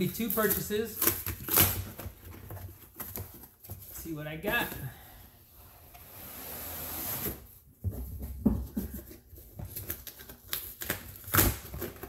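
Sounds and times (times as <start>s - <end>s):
cardboard box sliding: 5.9s - 7.5s.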